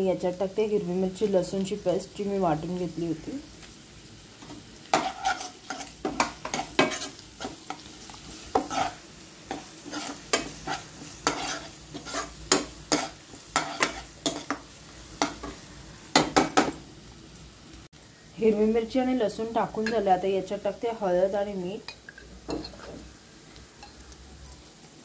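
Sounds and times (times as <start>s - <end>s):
oil frying and sizzling: 0.0s - 25.0s
steel spoon scraping pan: 4.9s - 14.6s.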